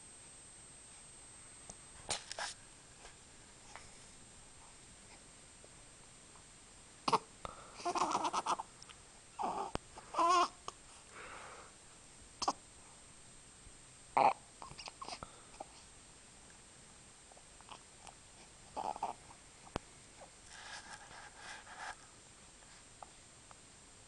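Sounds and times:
baby cooing and babbling: 0:07.8 - 0:08.6, 0:09.4 - 0:10.6, 0:14.2 - 0:15.2, 0:18.8 - 0:19.2.

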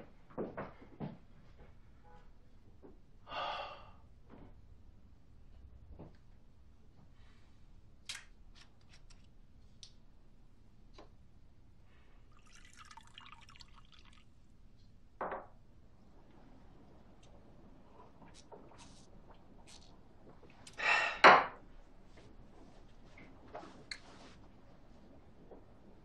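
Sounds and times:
water pouring into a glass: 0:12.3 - 0:14.4.

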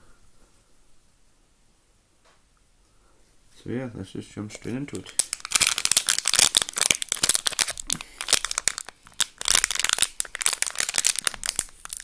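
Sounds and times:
plastic wrapper crinkling and tearing: 0:04.6 - 0:12.0.

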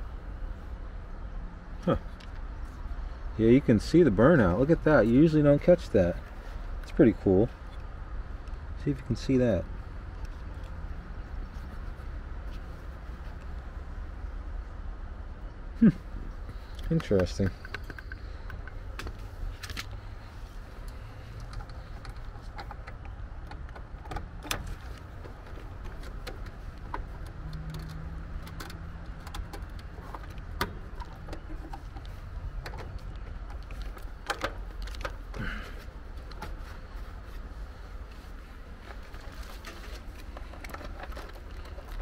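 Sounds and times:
steady low rumble: 0:00.0 - 0:42.0
light clicks of tools and wires: 0:16.4 - 0:20.1, 0:20.7 - 0:36.8.

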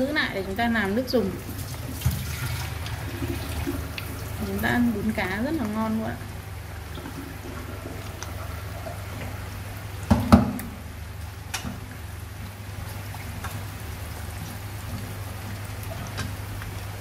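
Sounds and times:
fish sizzling in oil: 0:00.0 - 0:17.0
steady low hum: 0:00.0 - 0:17.0.

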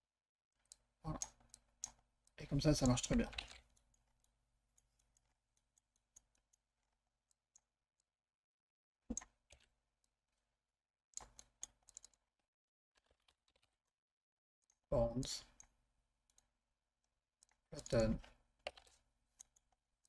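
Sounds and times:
computer mouse clicks: 0:00.6 - 0:02.0, 0:09.1 - 0:09.7, 0:11.2 - 0:12.2, 0:17.4 - 0:19.8.

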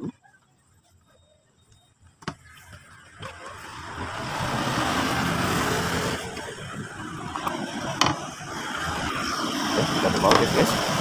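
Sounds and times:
passing vehicle engine rumble: 0:02.8 - 0:11.0.

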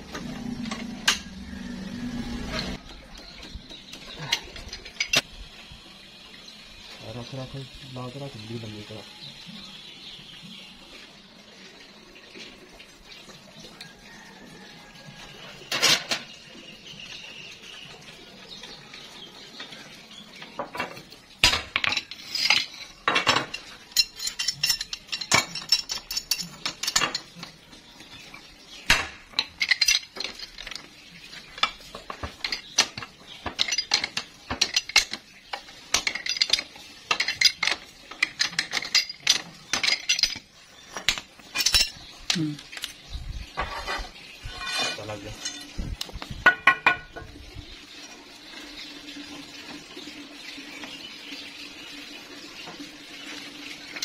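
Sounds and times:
wrench clinking and scraping on pipe: 0:04.3 - 0:05.3, 0:21.8 - 0:27.6, 0:29.3 - 0:30.9, 0:31.5 - 0:45.8.

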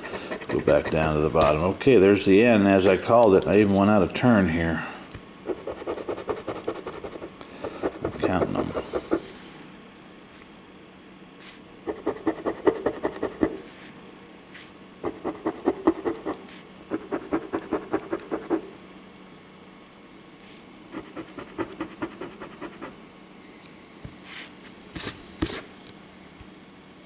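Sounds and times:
coin scraping scratch card: 0:00.0 - 0:01.5.

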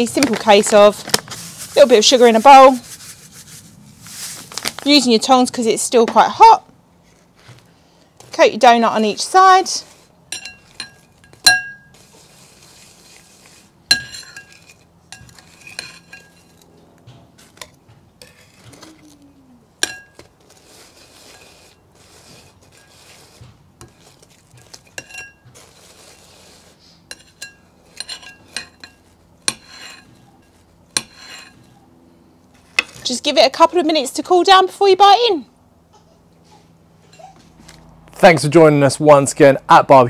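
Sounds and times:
gritty scrape of sugar: 0:00.0 - 0:05.1, 0:07.0 - 0:16.7, 0:17.4 - 0:19.2, 0:19.8 - 0:31.8
metal tongs clinking on ceramic bowl: 0:10.3 - 0:11.8.

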